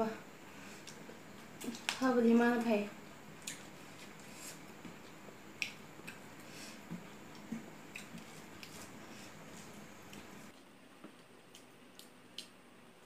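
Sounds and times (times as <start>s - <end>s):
chewing smacks: 7.4s - 8.8s.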